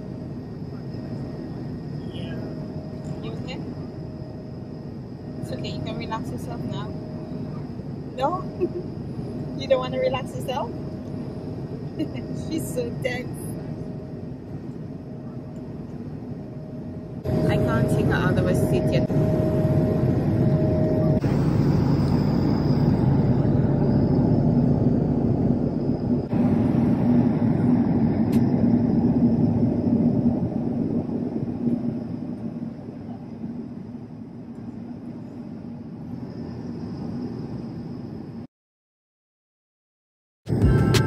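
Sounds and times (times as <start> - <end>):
airliner cabin noise: 0.0 - 38.5.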